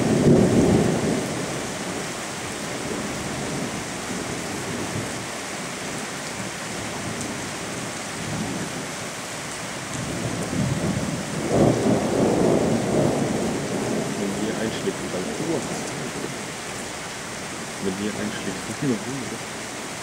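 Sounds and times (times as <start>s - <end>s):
low rumble of thunder: 0.0s - 5.2s, 10.0s - 16.7s
heavy rain: 0.0s - 20.0s.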